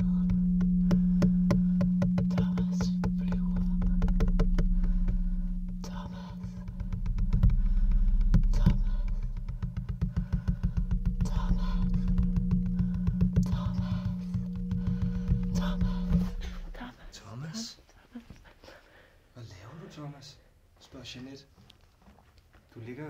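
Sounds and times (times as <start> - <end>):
low electronic drone: 0.0 - 17.2.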